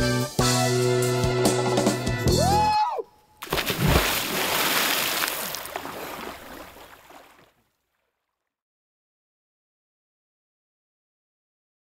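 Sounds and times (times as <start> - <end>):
water washing: 3.4 - 7.6
person diving into water: 3.4 - 7.7.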